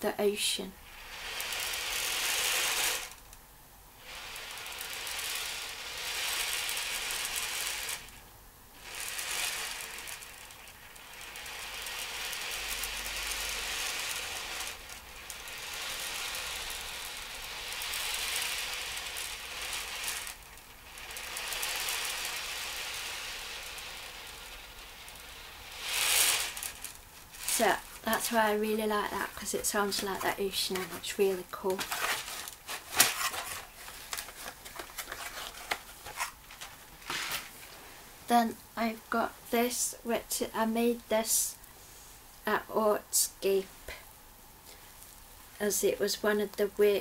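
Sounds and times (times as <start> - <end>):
beads rolling in ocean drum: 0.8 - 3.2, 4.0 - 8.2, 8.8 - 37.2.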